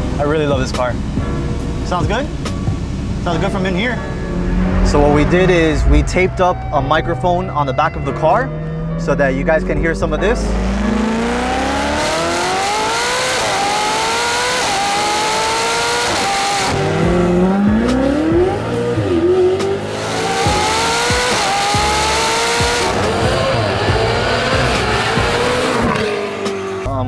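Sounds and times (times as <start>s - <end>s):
sports car accelerating through gears: 3.2s - 6.8s, 8.5s - 26.9s.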